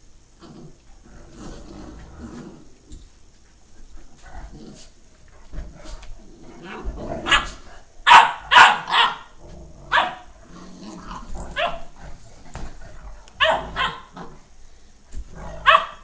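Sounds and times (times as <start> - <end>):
dog growling: 0.4 - 3.0, 4.0 - 14.5, 15.2 - 16.0
dogs barking sharply: 7.2 - 9.3, 9.9 - 10.3, 11.6 - 11.9, 13.4 - 14.2, 15.6 - 16.0.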